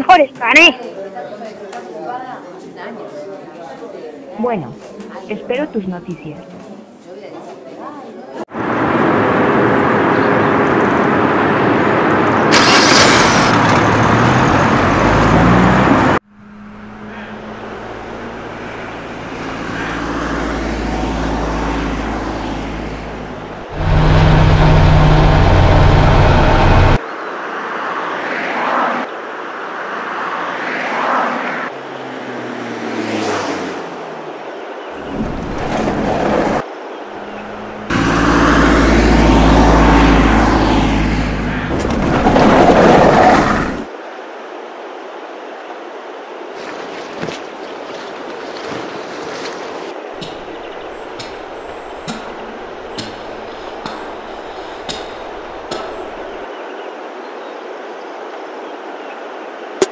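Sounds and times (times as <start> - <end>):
car engine revving: 12.5 - 27.0, 37.2 - 43.9.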